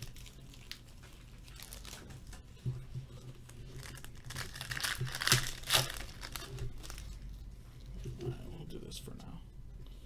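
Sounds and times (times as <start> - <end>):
foil wrapper crinkling and tearing: 0.0 - 2.4, 3.2 - 7.3.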